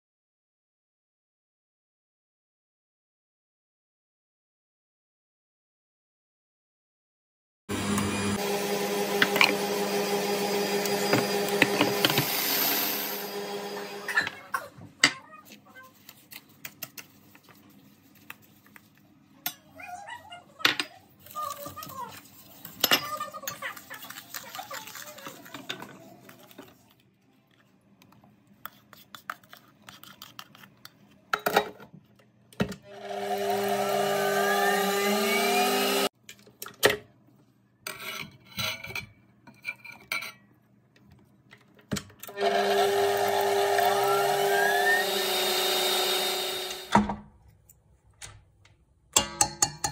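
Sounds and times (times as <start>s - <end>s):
stand mixer motor whirring: 7.7s - 14.2s, 32.9s - 36.1s, 42.3s - 46.9s
wooden spoon scraping a dish: 21.2s - 27.8s, 28.6s - 31.2s
bowls and utensils clicking: 49.1s - 49.9s.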